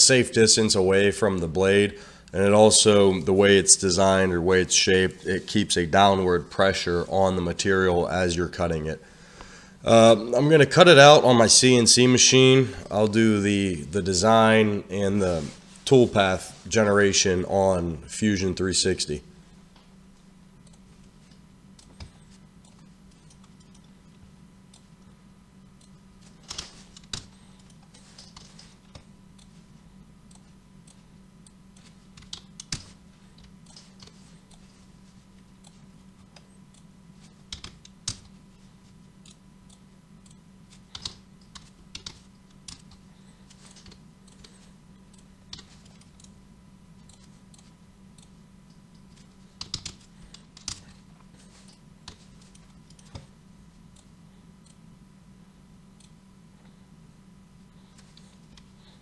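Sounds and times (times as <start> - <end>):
faint steady hum: 0.0 - 59.0
computer keyboard typing: 25.8 - 29.5, 31.7 - 34.7, 37.5 - 38.4, 40.3 - 46.4, 49.0 - 53.3.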